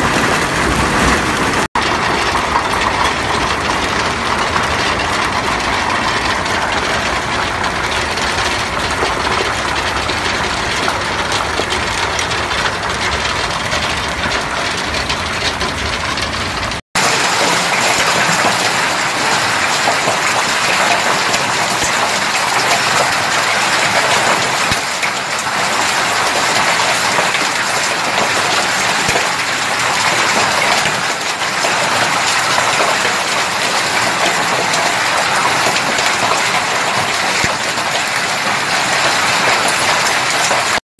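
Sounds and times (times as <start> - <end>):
deep rumble: 0.0 - 16.8
hail and rain on wooden deck: 0.0 - 40.8
hail clattering on ground: 0.0 - 40.8.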